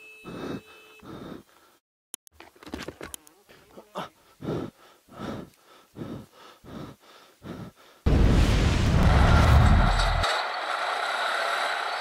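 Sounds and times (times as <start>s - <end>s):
person breathing hard: 0.2s - 1.8s, 4.0s - 8.1s.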